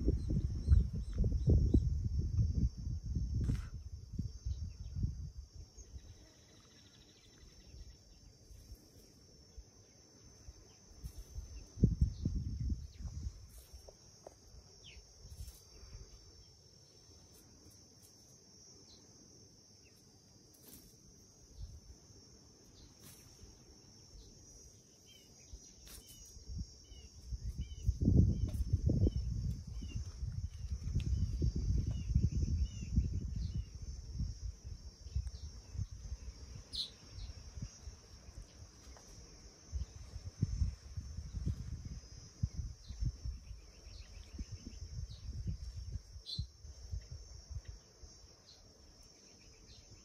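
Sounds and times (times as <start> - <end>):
insect chirring: 0.0 - 50.0.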